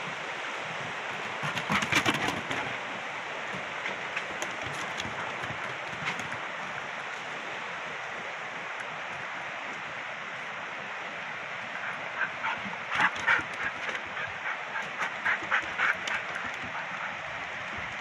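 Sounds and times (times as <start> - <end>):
steady rushing background: 8.0 - 18.0
footsteps on wooden boardwalk: 12.2 - 18.0.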